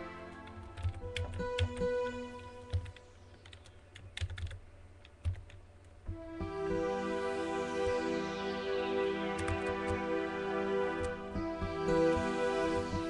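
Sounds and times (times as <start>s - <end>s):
synthesizer chord: 0.0s - 3.5s, 6.1s - 13.0s
quiet synth notes: 0.0s - 13.0s
computer keys and mouse clicking: 0.3s - 1.9s, 2.6s - 6.2s, 9.4s - 10.0s.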